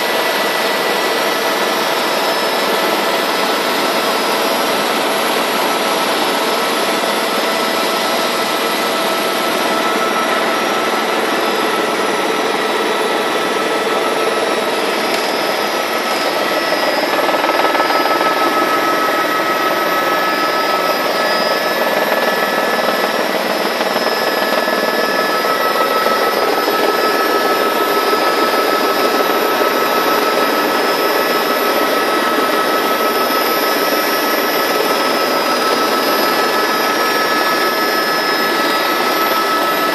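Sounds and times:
helicopter engine and rotor roar: 0.0s - 39.9s
high whining tones: 9.1s - 39.9s.

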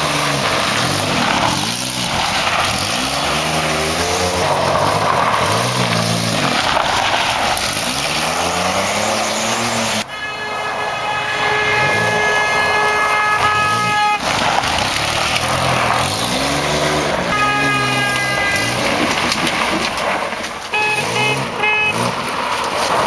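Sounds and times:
minivan engine revving: 0.0s - 10.1s, 11.6s - 23.0s
car horn: 10.0s - 14.6s, 17.1s - 19.2s, 20.6s - 22.2s.

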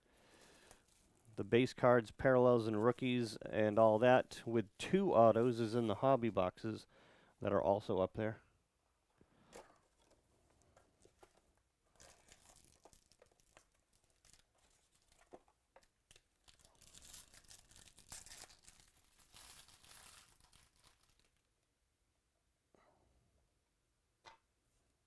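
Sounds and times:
foil wrapper tearing and crinkling: 11.9s - 21.5s.

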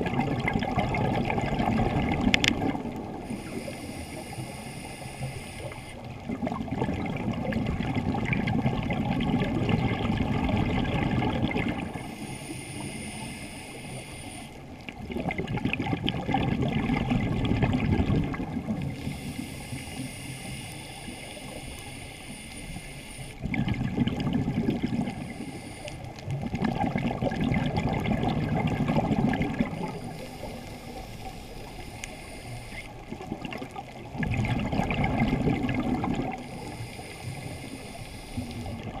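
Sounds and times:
bubbling exhale: 0.0s - 39.0s
regulator hiss on inhale: 3.2s - 6.1s, 11.9s - 14.8s, 18.9s - 23.4s, 24.9s - 26.4s, 29.6s - 33.1s, 36.3s - 38.9s.

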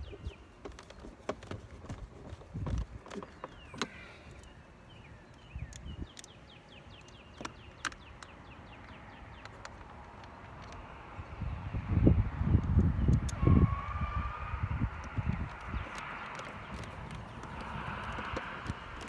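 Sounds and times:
bird singing: 0.0s - 1.4s, 3.0s - 19.0s.

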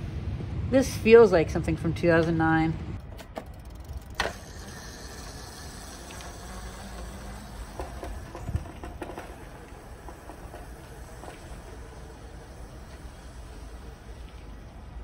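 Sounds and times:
wheels rumbling on asphalt: 0.0s - 15.0s
electric scooter motor hum: 3.0s - 15.0s
scooter knocking on pavement: 6.0s - 13.7s.

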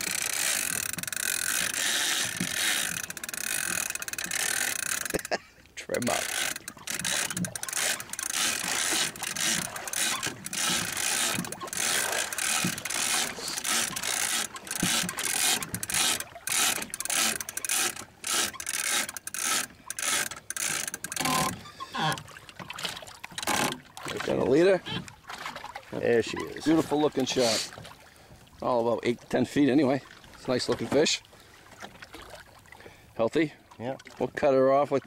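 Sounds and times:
fishing reel gears ratcheting: 0.0s - 23.8s.

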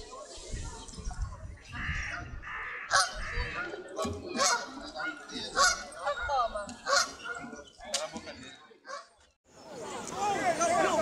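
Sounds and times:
geese honking: 1.7s - 6.1s, 6.8s - 7.5s.

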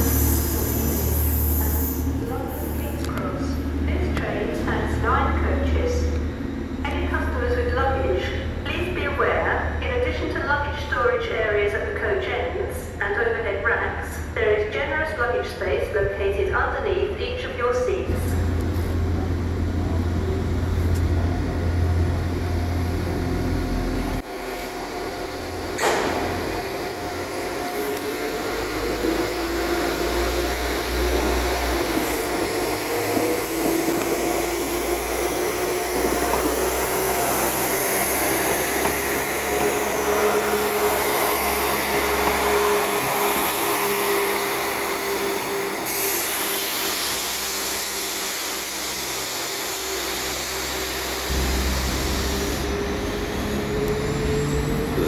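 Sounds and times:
diesel train engine throb: 0.0s - 55.0s
rising whine: 50.3s - 55.0s.

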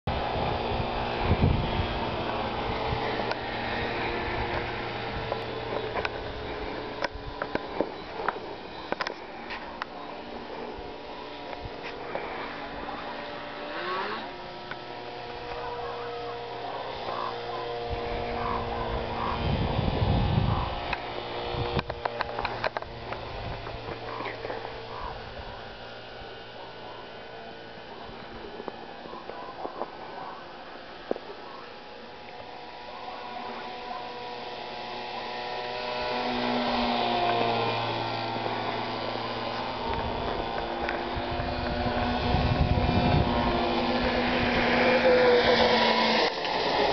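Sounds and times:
wind rumble on microphone: 0.1s - 7.5s, 17.8s - 25.6s, 39.8s - 44.8s
model plane motor humming: 0.1s - 46.9s.

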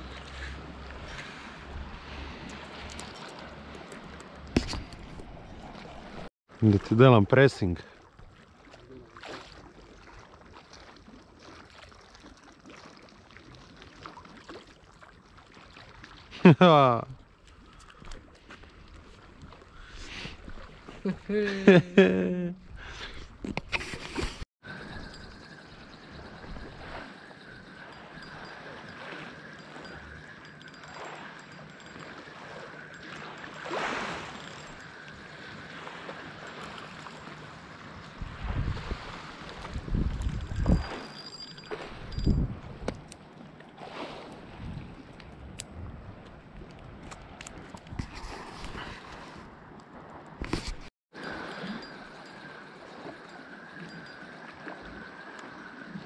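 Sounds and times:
small splashes: 7.8s - 16.4s, 27.8s - 38.1s
waves lapping on rocky shore: 26.0s - 45.6s, 46.2s - 56.0s.

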